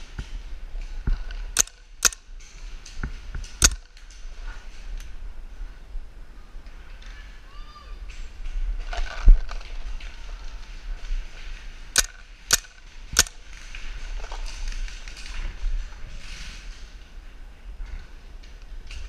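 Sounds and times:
paintball marker shots: 1.6 - 2.2, 3.5 - 3.9, 12.0 - 13.4.

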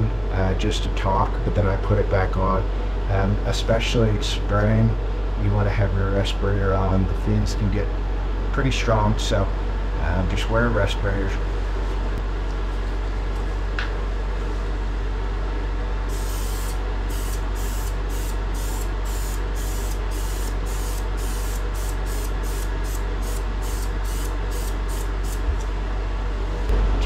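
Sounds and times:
steady low hum: 0.0 - 27.0
aerosol sprayer hissing: 16.1 - 25.6.

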